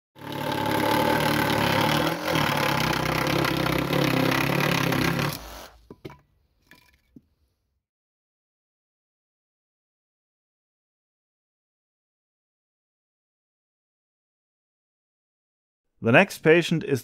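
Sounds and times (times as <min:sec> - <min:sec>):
saw cutting wood: 0:00.2 - 0:05.9.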